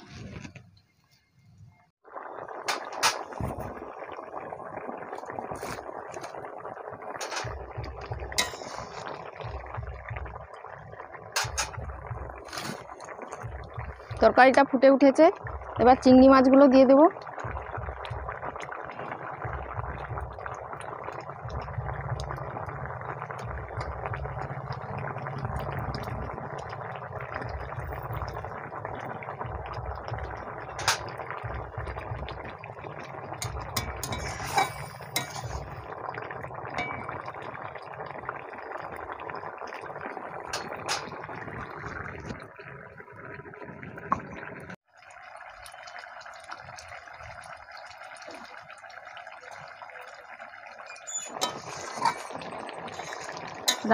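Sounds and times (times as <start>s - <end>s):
curry bubbling in pan: 2.0s - 53.9s.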